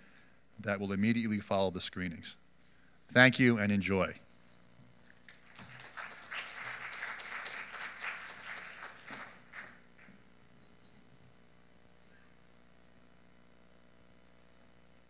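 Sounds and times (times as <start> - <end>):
audience applauding: 5.2 - 10.2.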